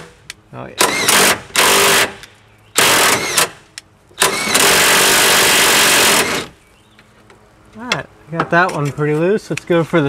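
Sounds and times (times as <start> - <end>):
impact wrench bursts: 0.8 - 2.2, 2.8 - 3.6, 4.2 - 6.6.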